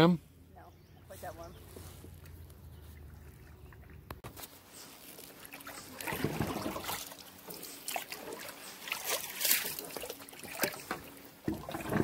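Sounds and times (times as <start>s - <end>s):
water splashing beside kayak: 2.2s - 12.0s.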